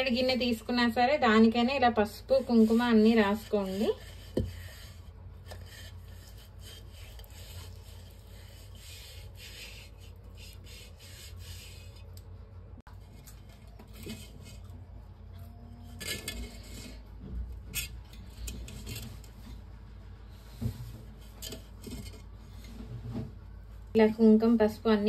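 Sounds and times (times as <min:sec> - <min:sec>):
fingertips rubbing clay pot: 0:01.6 - 0:12.2.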